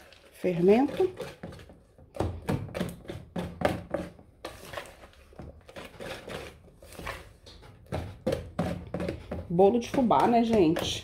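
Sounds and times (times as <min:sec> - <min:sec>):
whisk beating batter in bowl: 0:00.0 - 0:02.0, 0:02.6 - 0:11.0.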